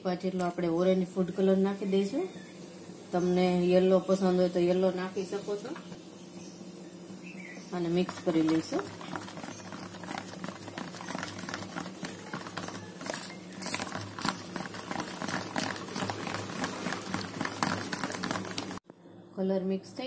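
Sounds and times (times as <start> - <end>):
spoon stirring thick batter: 7.8 - 18.8.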